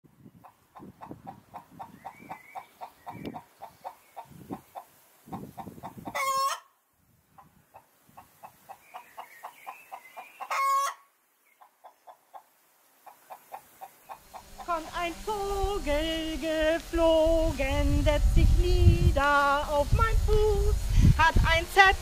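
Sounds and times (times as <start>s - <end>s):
chickens clucking: 0.4s - 6.7s, 7.3s - 16.9s.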